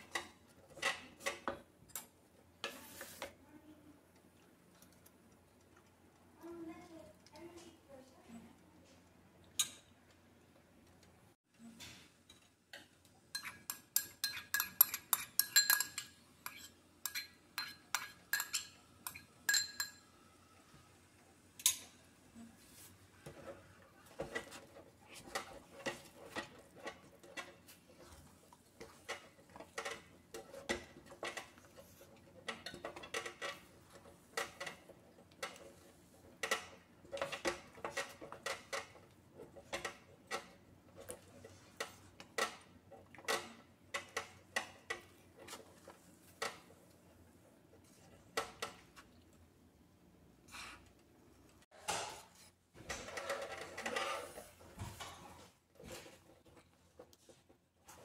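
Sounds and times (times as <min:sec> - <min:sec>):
bowl clinking against steel pot: 0:12.8 - 0:20.2.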